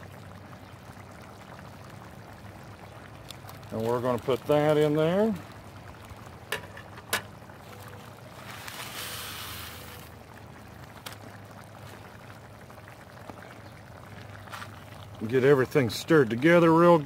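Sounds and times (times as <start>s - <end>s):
broth bubbling: 0.0s - 17.0s
rice poured into pan hissing: 8.3s - 10.1s.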